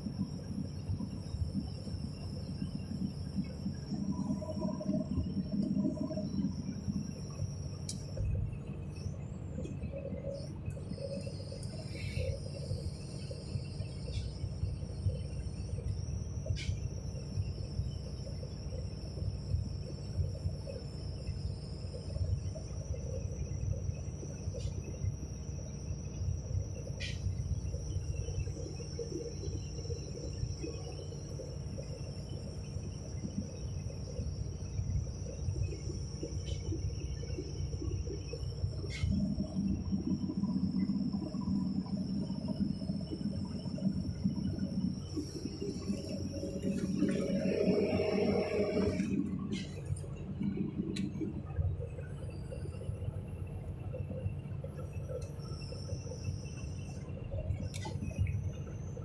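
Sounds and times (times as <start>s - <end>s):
high-pitched whine: 0.0s - 59.0s
faint clicks: 7.8s - 8.3s, 55.1s - 55.4s, 57.5s - 58.2s
diesel engine idling: 38.6s - 51.9s.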